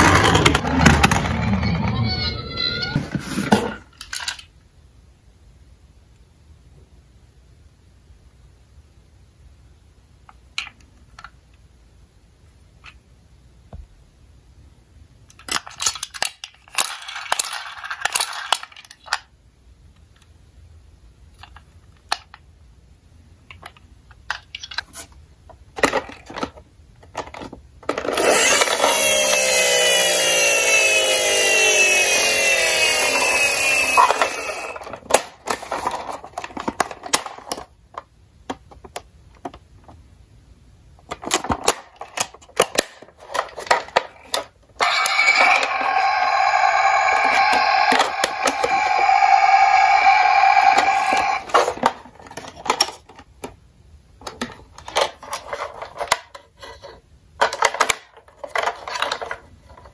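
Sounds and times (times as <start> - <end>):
toy clicks and plastic rustling: 3.9 - 4.6, 15.3 - 19.3, 21.3 - 22.4, 23.5 - 25.1, 25.8 - 39.6, 41.0 - 53.6, 54.2 - 59.9
toy friction motor whirring: 28.1 - 35.9, 44.8 - 51.9.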